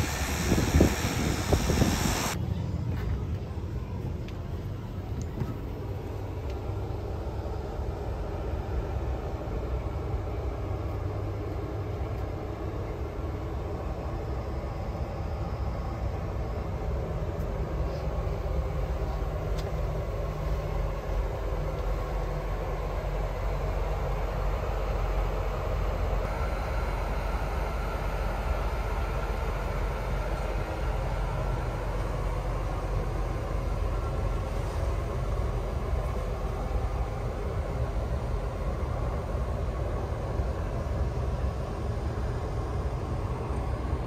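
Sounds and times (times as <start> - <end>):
wind on microphone: 0.0 - 2.4
steady low rumble: 0.0 - 44.0
turboprop engines taxiing: 0.0 - 44.0.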